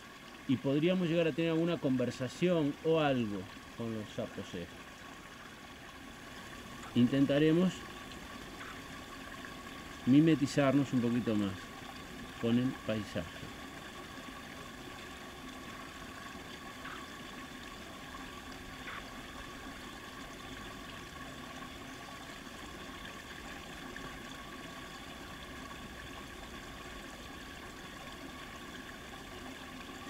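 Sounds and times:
continuous hiss: 0:00.0 - 0:30.0
faint ticks: 0:16.8 - 0:17.2.

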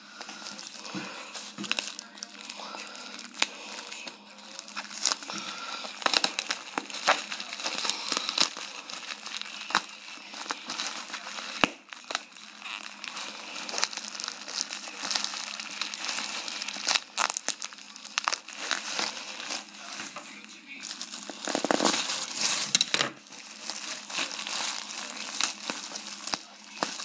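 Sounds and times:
bubble wrap crinkling: 0:00.0 - 0:27.0.

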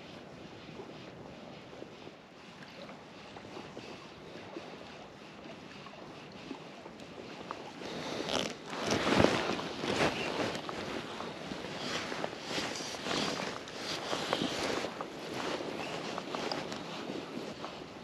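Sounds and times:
wind noise on microphone: 0:00.0 - 0:18.0
crunching footsteps: 0:07.9 - 0:16.9.

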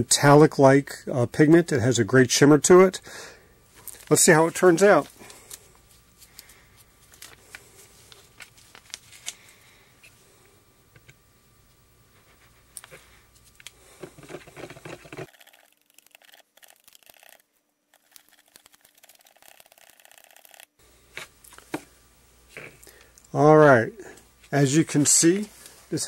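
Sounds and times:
stick scraping in plastic bucket: 0:14.0 - 0:15.3.

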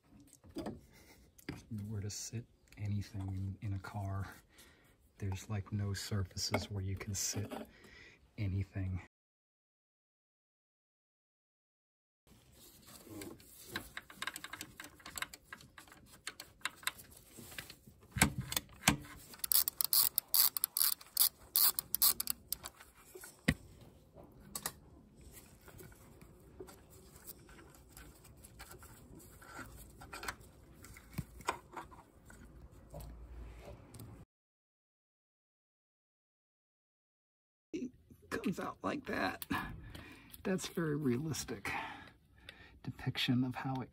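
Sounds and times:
hand tools clicking on metal: 0:19.4 - 0:22.7.

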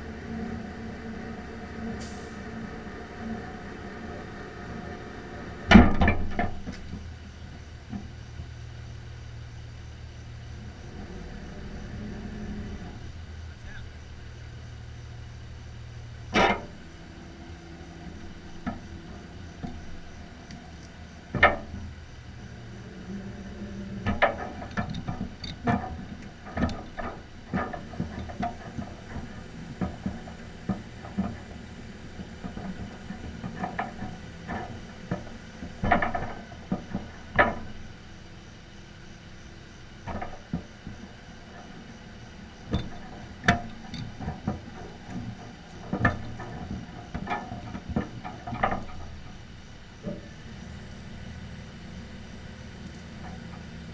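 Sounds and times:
truck engine idling: 0:00.0 - 0:53.9
metallic clanks and knocks: 0:16.3 - 0:16.8, 0:18.0 - 0:22.9, 0:23.8 - 0:38.0, 0:40.0 - 0:41.9, 0:42.5 - 0:50.4.

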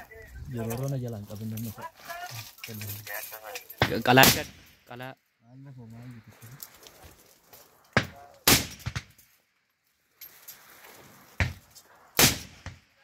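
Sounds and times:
gunshots with echo: 0:03.9 - 0:04.6.

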